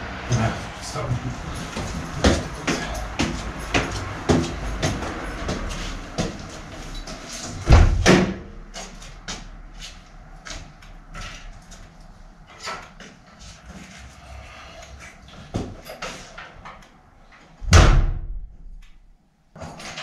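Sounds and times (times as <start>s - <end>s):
footsteps climbing stairs: 0.3s - 12.1s, 15.1s - 17.0s
loud bang: 17.6s - 18.6s.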